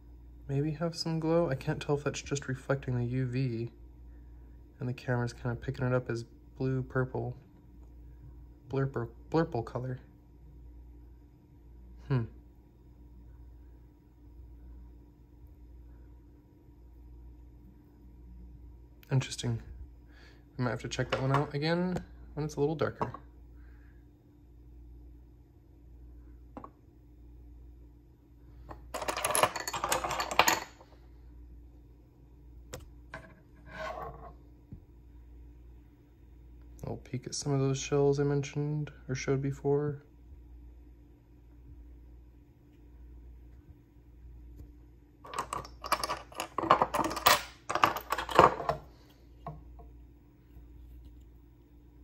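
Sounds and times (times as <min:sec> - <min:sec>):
shells and stones clattering: 0:28.8 - 0:30.8, 0:45.2 - 0:48.8.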